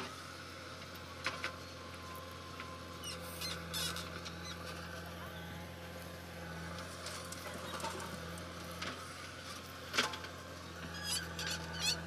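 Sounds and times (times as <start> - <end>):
diesel machinery droning: 0.0 - 12.0.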